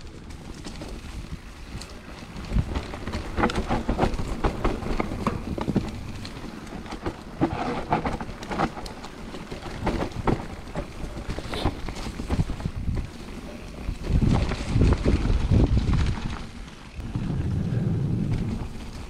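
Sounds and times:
mountain bike rattling: 0:00.0 - 0:19.0
low rumble: 0:17.0 - 0:19.0.

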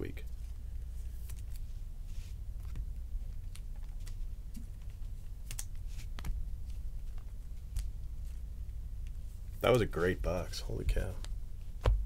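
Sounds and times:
low steady hum: 0:00.0 - 0:12.0
trading cards clicking and rustling: 0:00.3 - 0:01.8, 0:02.6 - 0:08.4.

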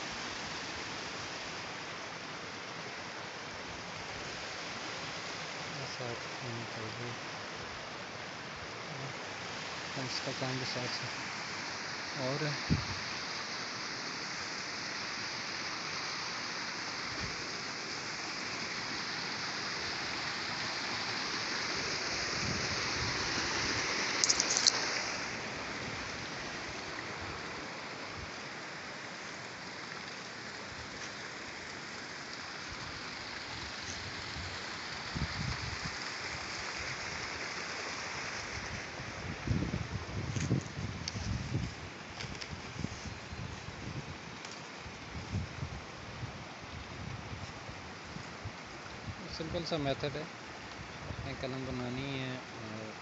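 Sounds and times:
steady rushing hiss: 0:00.0 - 0:53.0
sharp crackle: 0:24.1 - 0:24.9.

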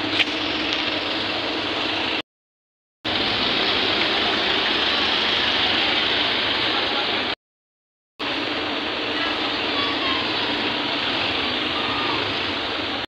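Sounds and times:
busy street traffic: 0:00.0 - 0:02.2, 0:03.0 - 0:07.4, 0:08.2 - 0:13.0.

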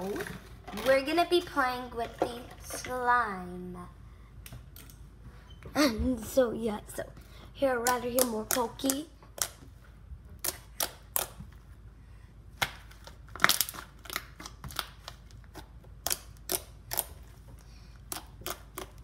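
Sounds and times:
slime clicking and popping: 0:10.4 - 0:11.4, 0:16.0 - 0:17.2, 0:18.1 - 0:19.0.

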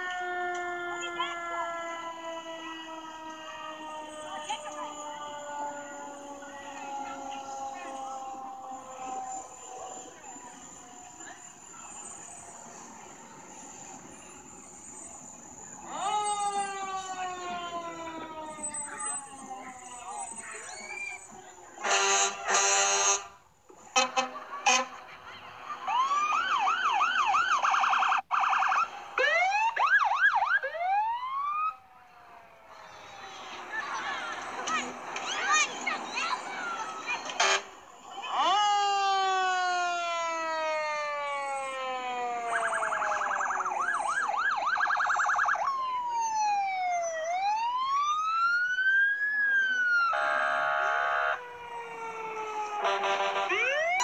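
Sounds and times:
fire truck siren wailing: 0:00.0 - 0:54.0
short horn blasts: 0:21.8 - 0:23.4, 0:37.4 - 0:37.8.

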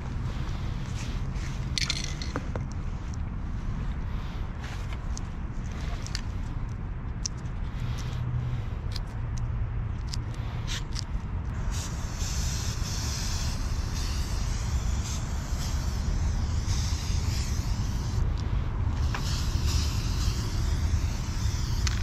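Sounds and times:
steady low rumble: 0:00.0 - 0:22.0
spray paint cans hissing: 0:10.2 - 0:22.0.

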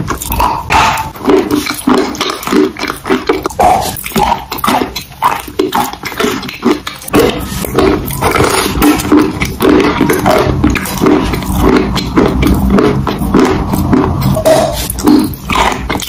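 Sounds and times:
chewing and biting: 0:00.0 - 0:16.0
mouth clicks and smacks: 0:00.0 - 0:16.0.

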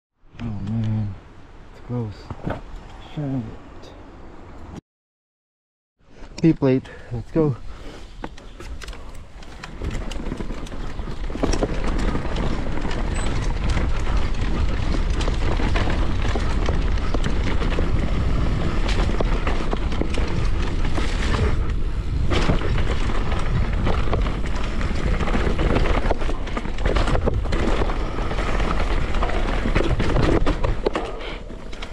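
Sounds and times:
bike tyres on dirt: 0:06.0 - 0:31.9
wind buffeting microphone: 0:08.4 - 0:31.9
bike chain and frame rattling: 0:08.6 - 0:31.9.

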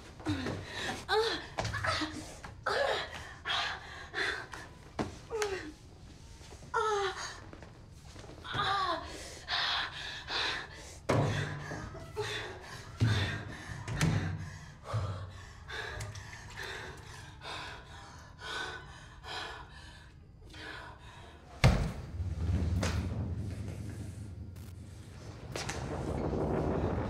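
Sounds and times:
low rumble: 0:21.9 - 0:27.0.

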